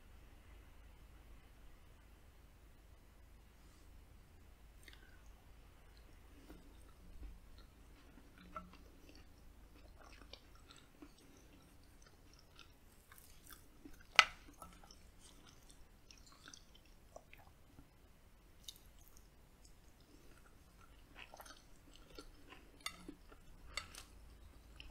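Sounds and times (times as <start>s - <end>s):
wet mouth clicks: 4.8s - 5.2s
person chewing food: 4.8s - 18.0s, 18.6s - 24.9s.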